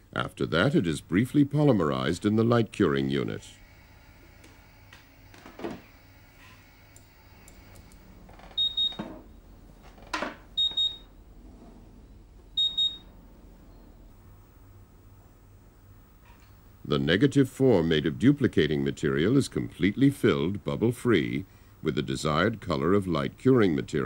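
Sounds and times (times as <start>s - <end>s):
short high beeps: 12.6s - 13.1s.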